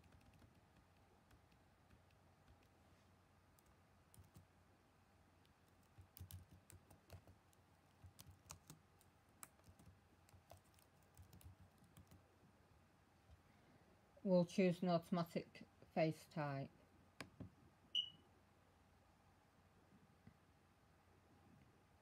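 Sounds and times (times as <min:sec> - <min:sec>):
keyboard typing: 0:00.0 - 0:02.8, 0:03.6 - 0:04.5, 0:05.6 - 0:12.2.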